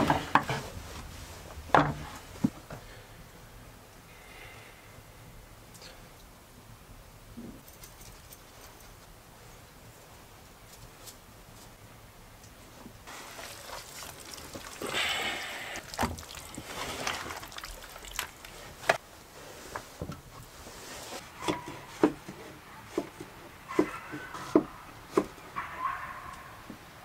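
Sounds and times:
wooden knocks and clacks: 1.7 - 2.7.

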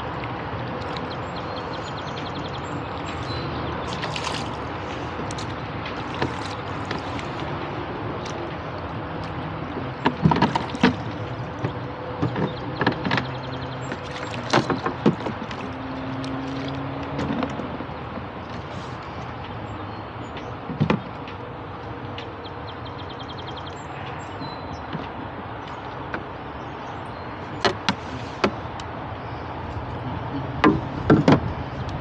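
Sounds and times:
oars knocking in oarlocks: 3.1 - 8.6, 9.2 - 19.5, 27.5 - 28.8, 30.6 - 31.9.

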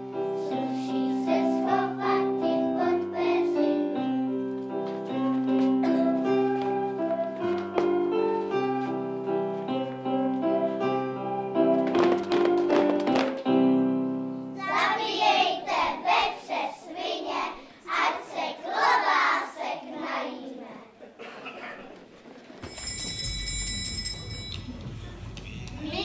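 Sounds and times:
keyboard playing a tune: 0.0 - 14.6
children's voices: 14.6 - 22.1, 25.8 - 26.0.

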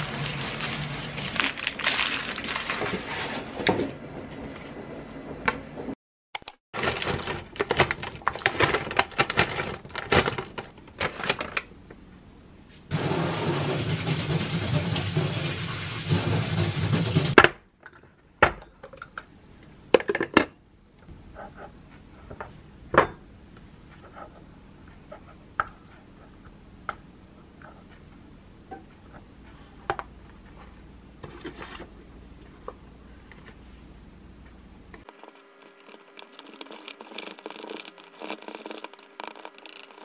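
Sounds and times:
tap running water: 12.9 - 17.4, 35.1 - 40.0.

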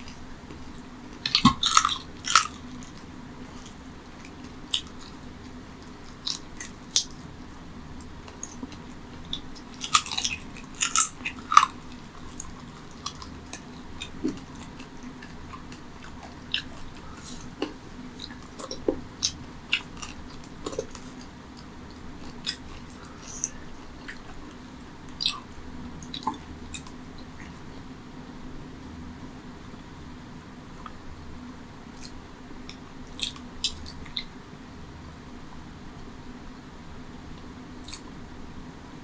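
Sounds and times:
man chewing food: 0.0 - 27.7, 31.9 - 34.3
wet mouth clicks: 8.3 - 21.3, 22.2 - 24.4, 25.1 - 27.6, 32.0 - 34.3, 37.8 - 38.1.

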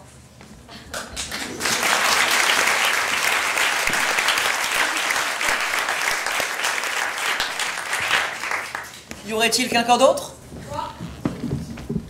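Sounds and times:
audience applause: 0.9 - 9.1.

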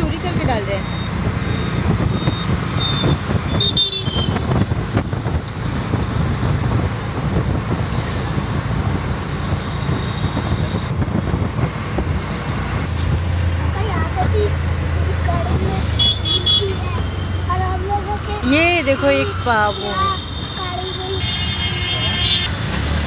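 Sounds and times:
traffic rumble of engines and tyres: 0.0 - 23.0.

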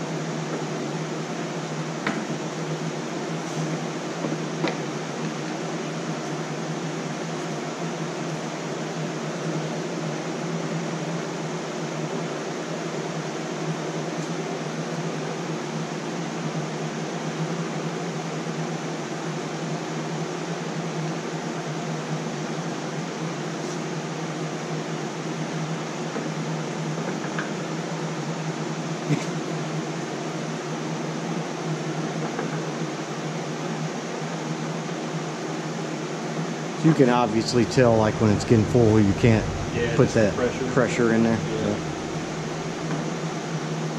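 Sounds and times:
cooling fans whirring: 0.0 - 43.9
constant low hum: 36.8 - 43.9.

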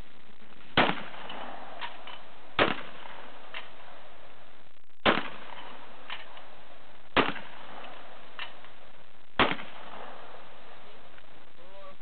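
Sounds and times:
shotgun shots: 0.7 - 3.9, 5.0 - 6.3, 7.1 - 8.6, 9.4 - 10.4.

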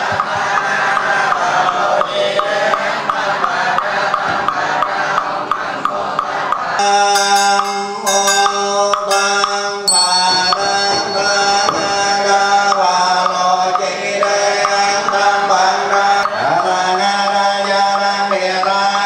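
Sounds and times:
monks chanting: 0.0 - 19.0
bowl bell ringing: 6.8 - 12.7
sharp knocks keeping beat: 6.8 - 12.9.

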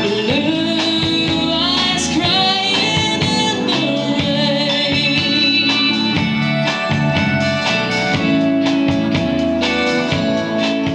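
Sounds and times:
woman singing: 0.0 - 6.4
live band country ballad: 0.0 - 10.9.

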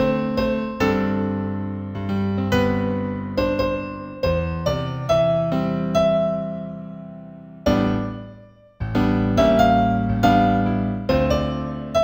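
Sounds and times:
slow gentle solo piano: 0.0 - 12.0.

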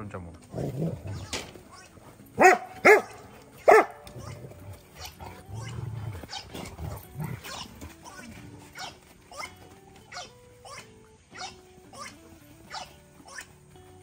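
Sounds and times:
dogs grumbling while wrestling: 0.5 - 1.2, 2.0 - 10.3
dog barking: 2.4 - 4.4, 5.0 - 6.6, 7.4 - 9.5, 10.1 - 10.8, 11.4 - 12.1, 12.7 - 13.4.

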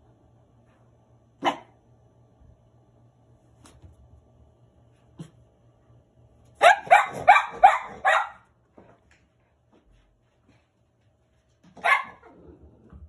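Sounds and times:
dog barking sharply: 1.4 - 1.7, 6.6 - 8.4, 11.8 - 12.2.

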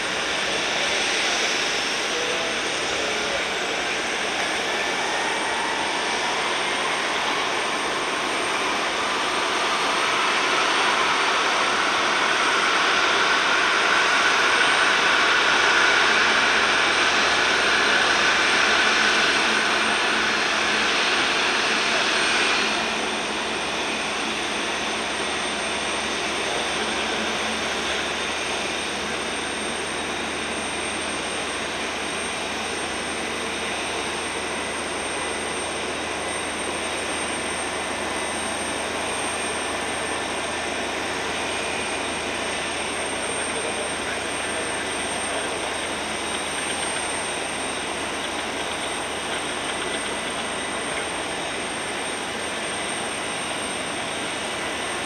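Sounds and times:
jet engines running: 0.0 - 55.0.

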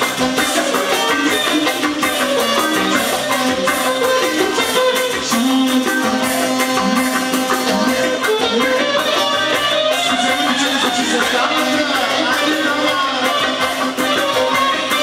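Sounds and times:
reed instrument melody: 0.0 - 15.0
steady drum beat: 0.0 - 15.0.

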